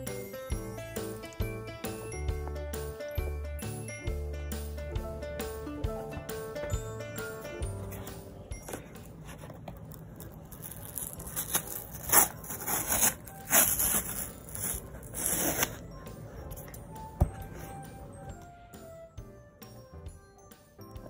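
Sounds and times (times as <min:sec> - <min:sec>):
packing tape ripping off cardboard: 0:10.2 - 0:15.8.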